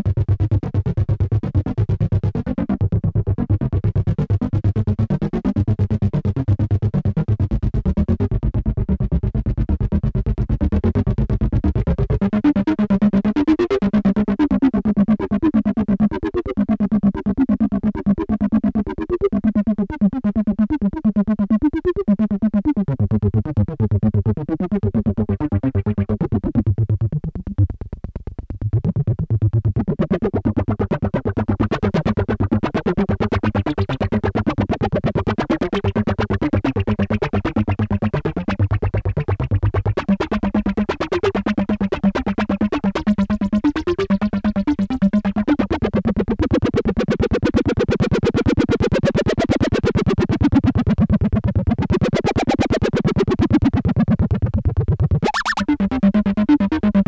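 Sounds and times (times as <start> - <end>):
deep synth bass notes: 0.0 - 13.0, 17.9 - 46.4, 53.3 - 57.0
distorted synthesizer sequence: 55.1 - 55.9.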